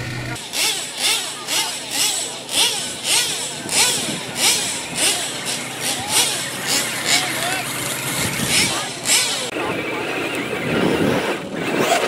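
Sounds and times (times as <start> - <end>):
toy truck motor revving: 0.0 - 12.0.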